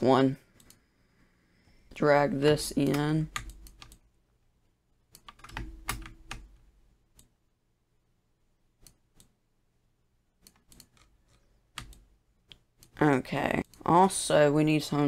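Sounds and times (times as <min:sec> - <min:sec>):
computer mouse clicks: 0:00.5 - 0:00.8, 0:02.8 - 0:04.1, 0:08.8 - 0:09.4, 0:10.4 - 0:13.0.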